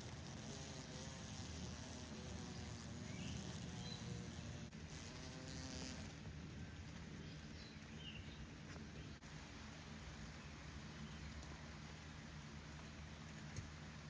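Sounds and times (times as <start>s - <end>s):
fly buzzing wings: 0.0s - 6.2s.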